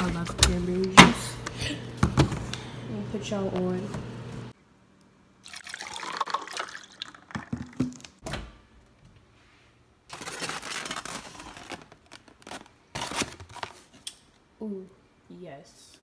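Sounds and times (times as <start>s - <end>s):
juice pouring into plastic cup: 5.4s - 8.2s
bottle and cup knocking: 7.3s - 8.0s.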